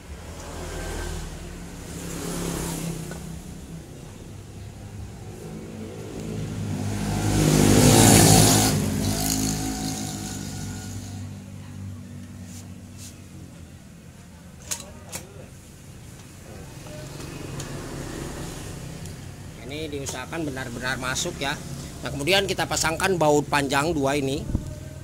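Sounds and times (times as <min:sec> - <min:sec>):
motor vehicle engine passing by: 0:00.1 - 0:13.2, 0:16.5 - 0:22.8.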